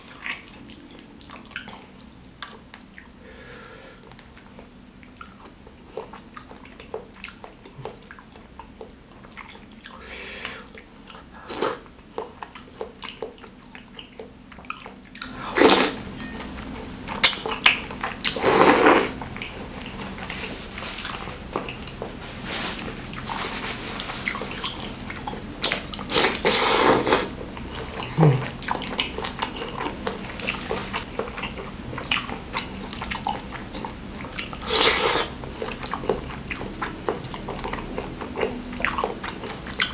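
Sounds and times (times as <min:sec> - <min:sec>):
wet chewing and lip smacking: 0:00.1 - 0:03.2, 0:04.0 - 0:15.3, 0:22.8 - 0:39.9.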